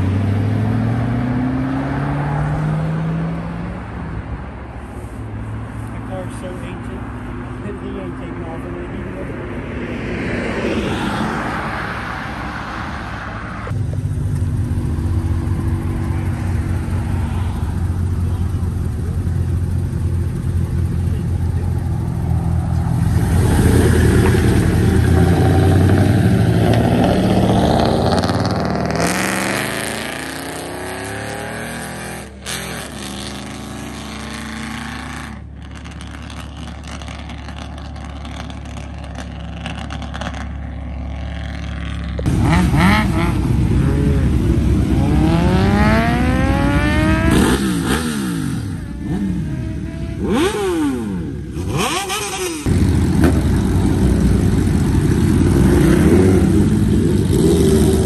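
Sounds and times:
vehicle engines running: 0.0 - 58.0
motorcycle engine revving: 13.7 - 58.0.

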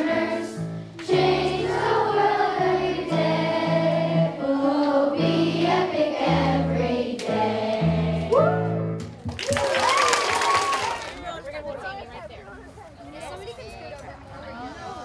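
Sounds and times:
children singing together: 0.0 - 8.3
held bass notes accompaniment: 0.0 - 9.3.

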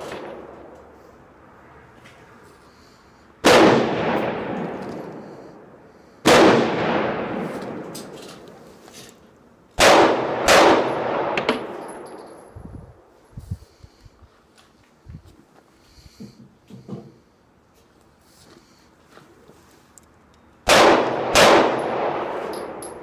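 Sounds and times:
pistol shots echoing: 3.4 - 5.2, 6.2 - 7.9, 9.8 - 12.1, 20.6 - 23.0.

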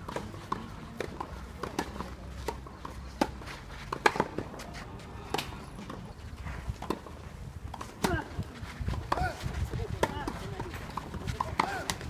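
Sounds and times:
tennis ball struck and bouncing: 0.0 - 6.0, 8.9 - 12.0.

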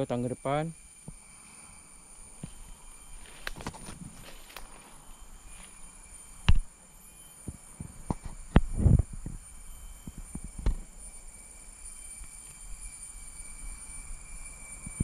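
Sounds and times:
faint high whine: 0.0 - 15.0
footsteps through leaf litter: 3.2 - 5.0.

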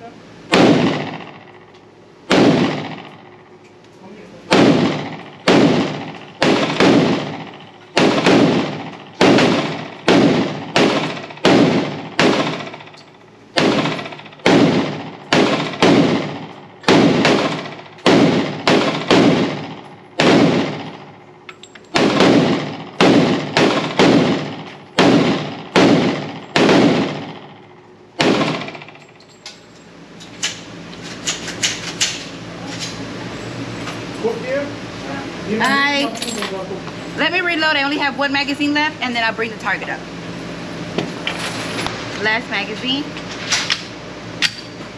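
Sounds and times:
pistol shots echoing: 0.5 - 1.6, 2.3 - 3.4, 4.5 - 12.9, 13.5 - 21.2, 21.9 - 29.0.

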